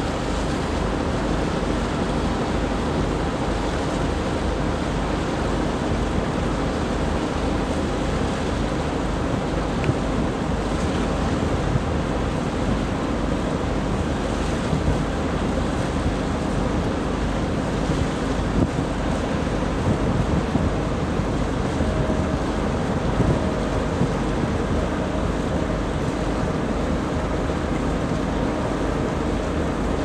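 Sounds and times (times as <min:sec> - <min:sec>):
boat engine hum: 0:00.0 - 0:30.0
water rushing past boat: 0:00.0 - 0:30.0
wind buffeting microphone: 0:09.2 - 0:30.0.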